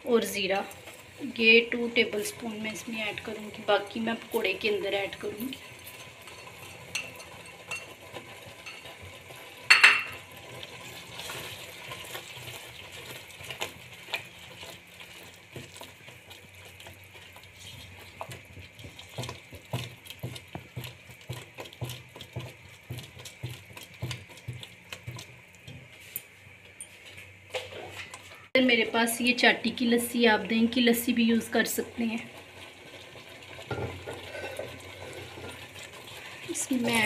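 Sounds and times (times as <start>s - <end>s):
hiss from pan: 32.0s - 37.0s
spatula scraping metal pot: 33.7s - 37.0s.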